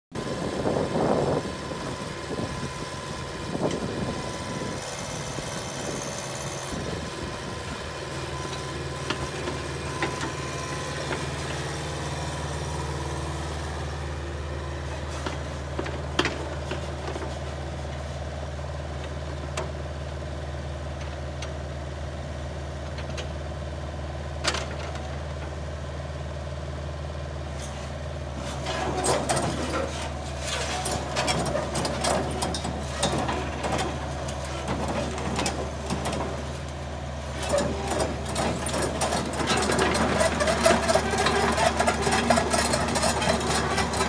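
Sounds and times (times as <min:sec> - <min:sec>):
excavator diesel engine running: 0:00.2 - 0:44.0.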